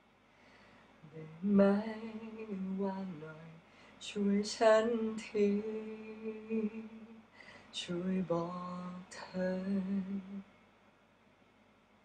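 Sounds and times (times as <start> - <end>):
man singing softly: 1.0 - 10.6.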